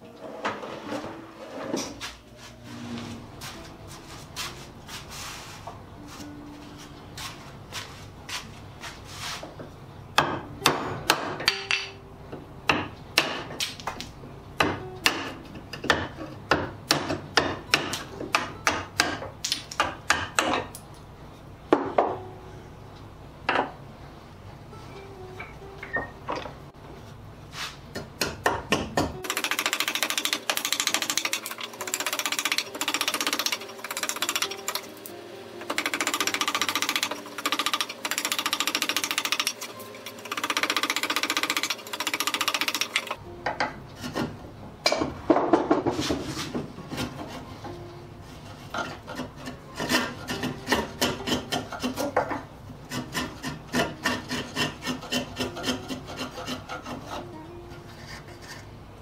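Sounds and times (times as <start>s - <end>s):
mallet striking a chisel into wood: 10.2s - 12.0s, 12.7s - 13.6s, 14.6s - 20.7s, 28.0s - 31.3s.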